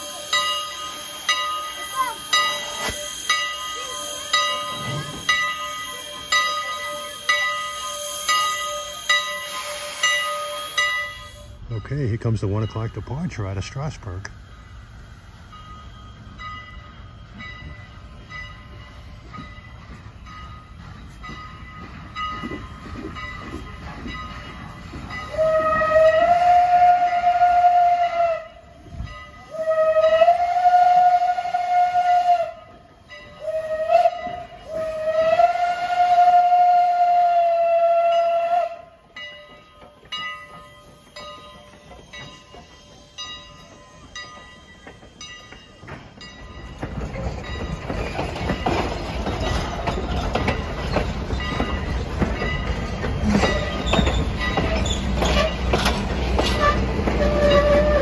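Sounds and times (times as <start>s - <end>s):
shrill steam whistle blasts: 0.0s - 11.6s, 25.2s - 39.0s, 53.4s - 55.8s, 56.4s - 58.0s
train running and knocking: 0.0s - 58.0s.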